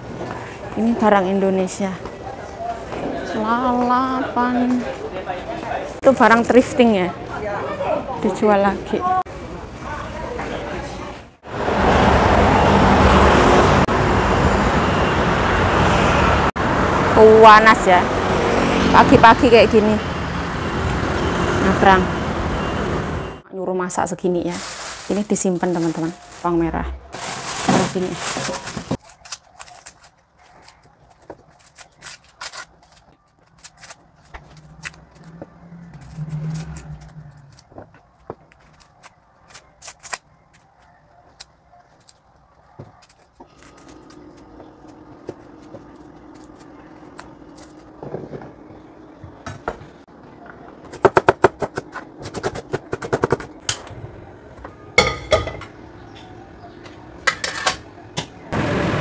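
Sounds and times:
dishes and utensils clattering: 55.0s - 56.3s, 57.2s - 57.9s.

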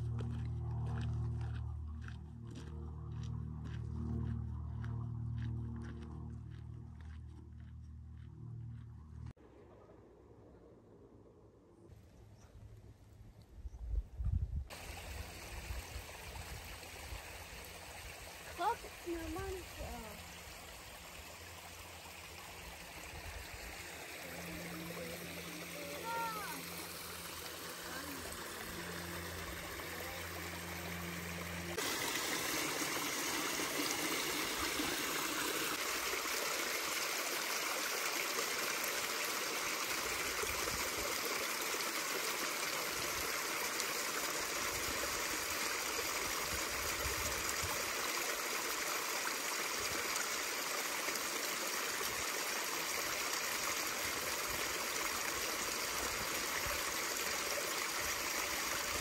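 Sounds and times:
stream splashing over rocks: 14.7s - 59.0s.

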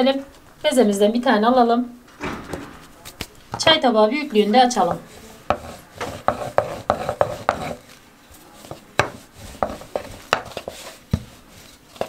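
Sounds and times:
rolling pin rubbing dough: 4.3s - 12.0s
rolling pin knocking on worktop: 9.0s - 11.4s.

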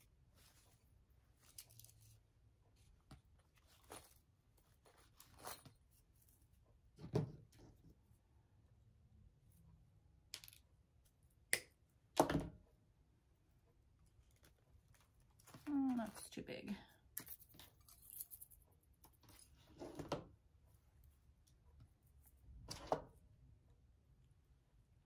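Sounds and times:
rustling: 0.0s - 6.6s.

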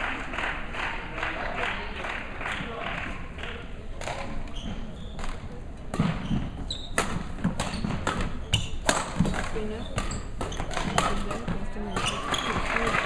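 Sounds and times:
shoes squeaking on court floor: 4.4s - 13.0s
rackets striking shuttlecock: 7.0s - 13.0s.

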